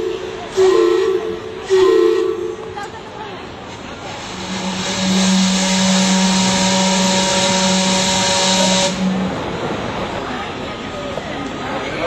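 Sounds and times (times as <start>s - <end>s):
low steam whistle: 0.0s - 2.5s, 4.2s - 9.5s
loud hissing steam: 3.5s - 10.7s.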